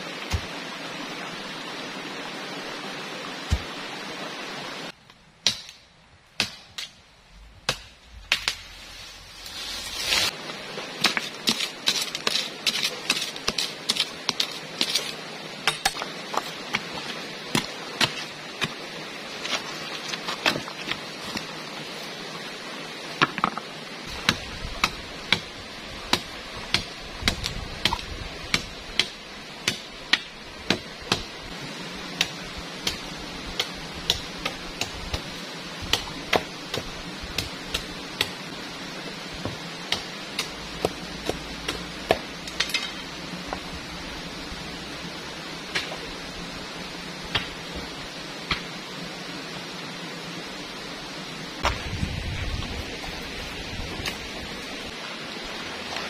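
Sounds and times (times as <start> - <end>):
river water rushing: 0.0 - 5.0, 28.1 - 56.0
metal tool striking stony ground: 11.0 - 16.9, 39.9 - 43.1.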